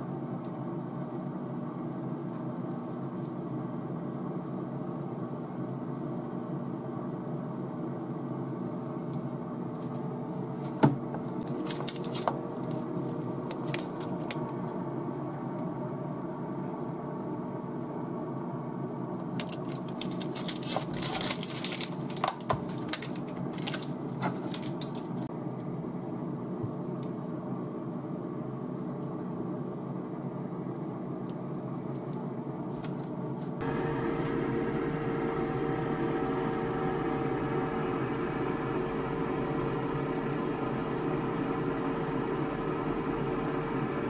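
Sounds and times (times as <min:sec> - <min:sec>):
steady low hum: 0:00.0 - 0:44.0
plastic pack clicks and crackles: 0:11.4 - 0:14.6, 0:19.3 - 0:25.2.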